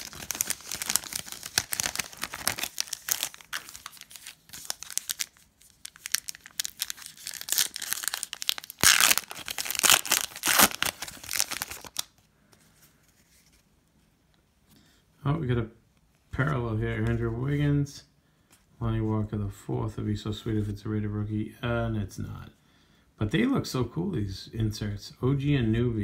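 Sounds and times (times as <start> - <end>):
foil wrapper crinkling and tearing: 0.0 - 12.2.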